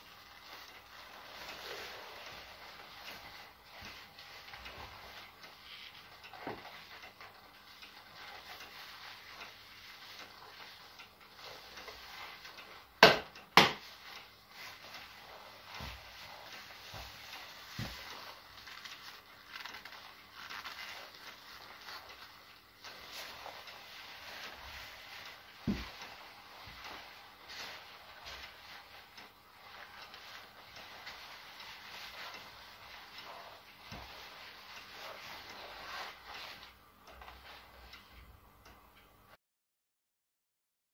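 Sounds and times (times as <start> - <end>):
leather rustling and creaking: 0.0 - 7.0, 14.0 - 37.6
low hiss: 0.0 - 39.4
sharp slaps: 13.0 - 13.8
leather clothing creaking: 15.8 - 22.3, 22.9 - 28.8.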